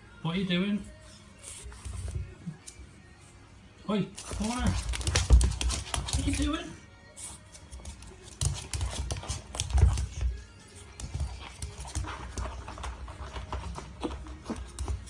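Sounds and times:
dog claws clicking on wooden floor: 4.2 - 6.5, 7.8 - 10.3.

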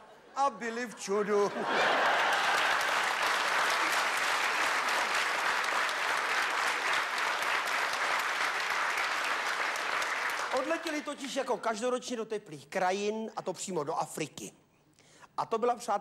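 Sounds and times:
audience applauding: 1.8 - 11.5.

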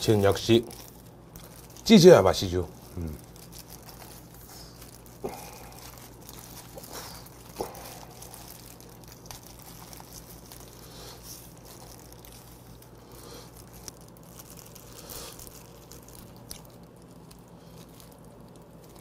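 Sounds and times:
low steady hum: 0.0 - 19.0
wet squishing and tearing: 0.0 - 19.0.

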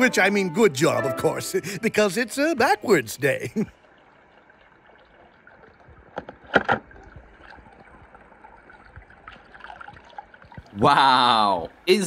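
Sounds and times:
short water splashes: 2.9 - 11.5.

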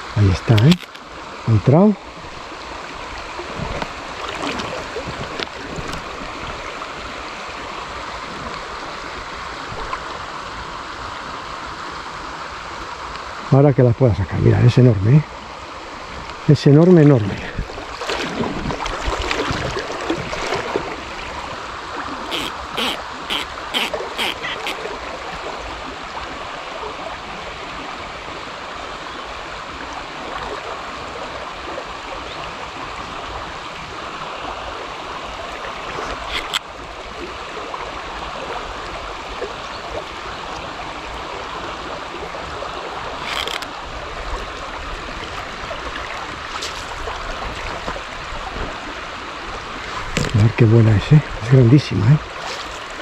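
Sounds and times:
river water running: 0.0 - 53.0
sharp clicks: 0.5 - 1.0.

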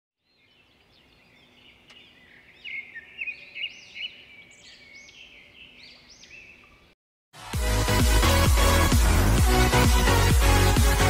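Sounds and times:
birds chirping: 0.2 - 7.0.

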